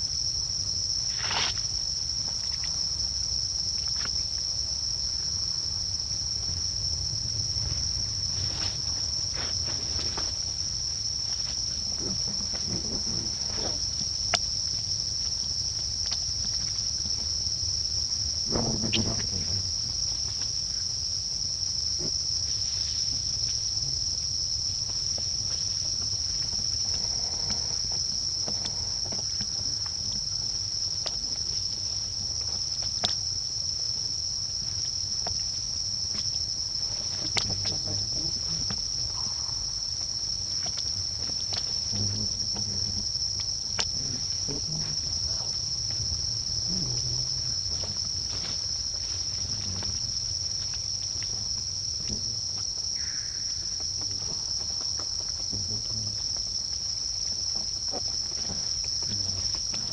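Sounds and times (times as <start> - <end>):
insects buzzing: 0.0 - 59.9.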